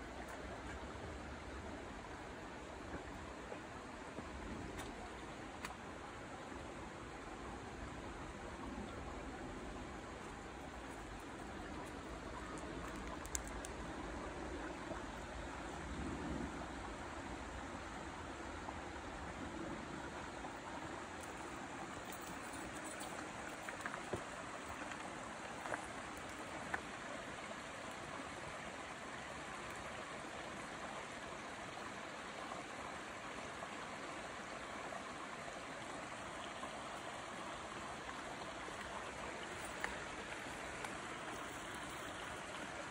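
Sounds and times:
creek rushing: 0.0 - 42.9
light clicks: 11.3 - 13.9.

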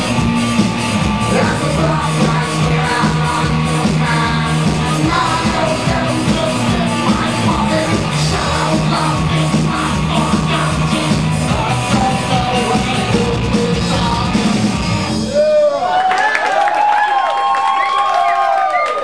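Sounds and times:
live rock band playing: 0.0 - 15.4
audience whooping and cheering: 15.1 - 19.0.

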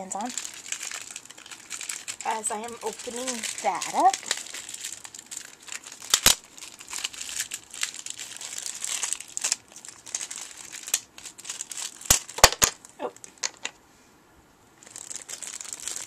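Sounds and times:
plastic packaging crinkling: 0.0 - 13.7, 14.8 - 16.0.

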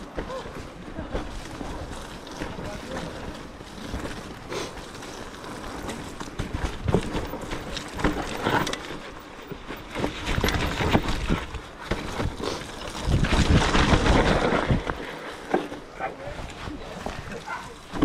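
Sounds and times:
bike knocks and rattles: 0.0 - 18.0
bike tyres through mud: 0.0 - 18.0
wind buffeting microphone: 10.1 - 15.1.

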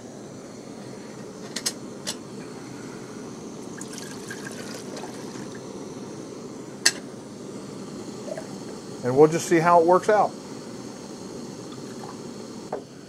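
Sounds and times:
camping stove hissing: 0.0 - 13.0
water pouring from a cup: 3.7 - 5.6.

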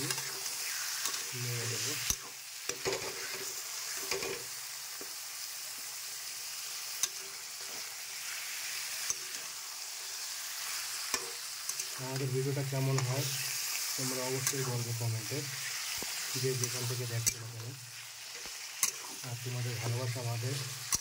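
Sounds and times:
meat sizzling in a pan: 0.0 - 21.0
spatula scraping a pan: 1.9 - 4.5, 12.7 - 21.0.

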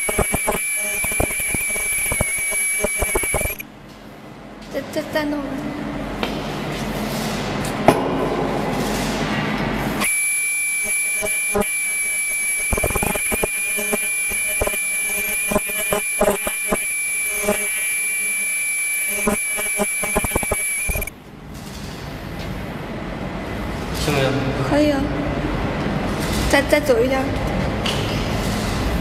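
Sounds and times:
sewing machine whine: 0.0 - 3.6, 10.0 - 21.1.

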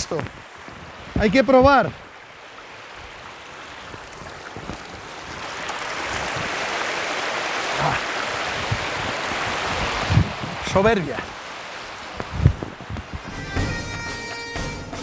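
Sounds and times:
stream rushing over rocks: 0.0 - 14.8.

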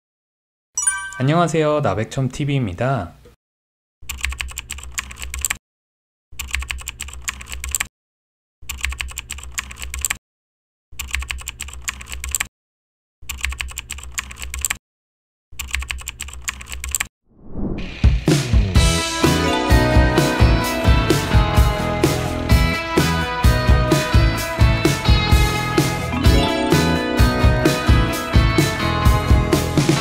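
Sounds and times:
computer keyboard typing: 4.1 - 5.6, 6.4 - 7.9, 8.6 - 10.2, 11.0 - 12.5, 13.2 - 14.8, 15.6 - 17.1.

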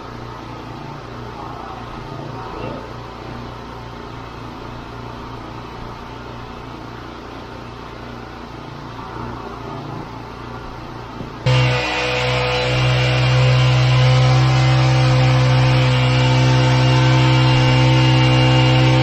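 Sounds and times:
truck engine droning: 11.4 - 19.0.

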